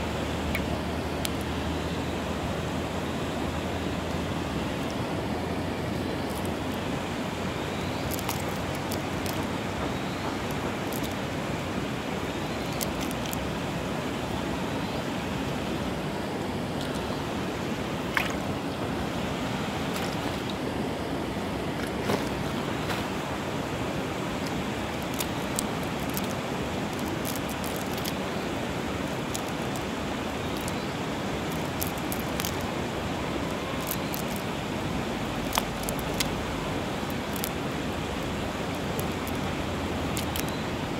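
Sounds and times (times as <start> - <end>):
rushing outdoor noise: 0.0 - 40.9.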